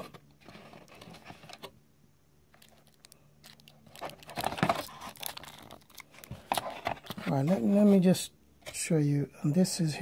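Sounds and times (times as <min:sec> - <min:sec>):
plastic wrap crackling: 0:02.5 - 0:07.5.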